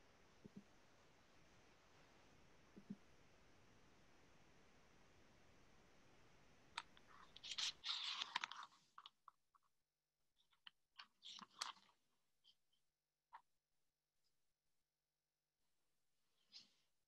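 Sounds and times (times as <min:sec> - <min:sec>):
faint steady hiss: 0:00.0 - 0:09.2
paper rustling: 0:07.1 - 0:09.1, 0:11.0 - 0:11.9.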